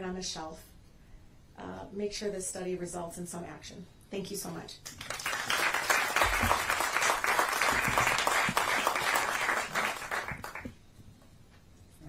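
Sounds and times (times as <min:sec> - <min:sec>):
audience applauding: 0:04.9 - 0:10.8.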